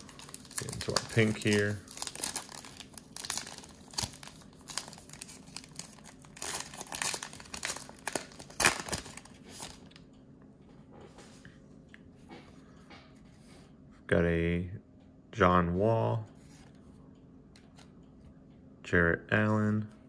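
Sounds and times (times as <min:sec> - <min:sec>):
plastic wrapper crinkling and tearing: 0:00.0 - 0:10.0.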